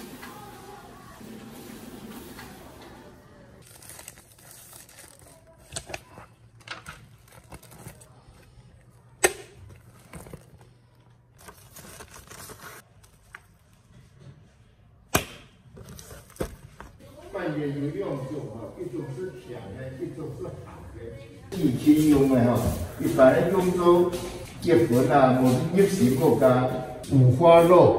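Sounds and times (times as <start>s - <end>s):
rustling and crinkling handling noise: 3.6s - 14.6s.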